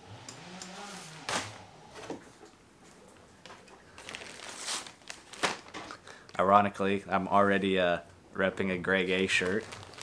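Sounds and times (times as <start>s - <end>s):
parcel rustle: 9.1s - 10.0s.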